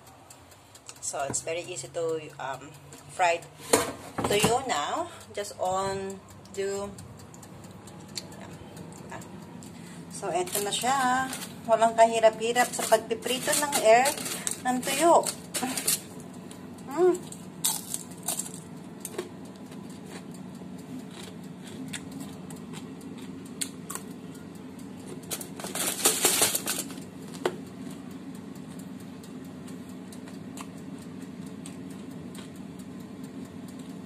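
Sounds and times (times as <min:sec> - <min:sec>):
scattered clicks: 0:00.0 - 0:03.6, 0:04.6 - 0:34.0
low steady hum: 0:00.0 - 0:34.0
aluminium foil crinkling: 0:10.3 - 0:20.4, 0:25.1 - 0:28.0.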